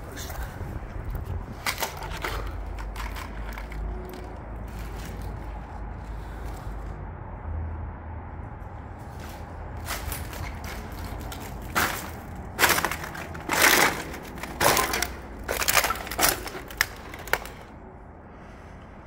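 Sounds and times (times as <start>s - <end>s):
footsteps crunching on cans: 9.0s - 17.7s.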